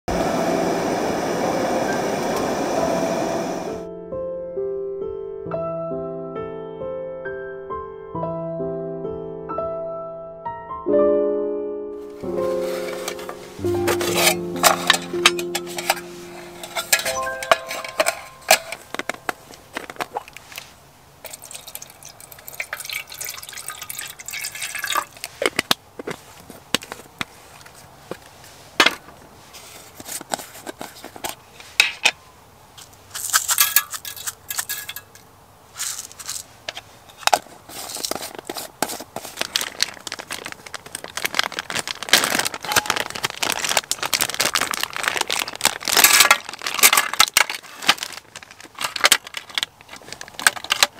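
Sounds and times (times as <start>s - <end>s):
plastic bag crinkling: 12.1s - 27.8s, 33.1s - 50.9s
metal tin clinking: 12.6s - 20.4s, 21.2s - 25.3s, 33.1s - 36.4s, 42.6s - 43.2s.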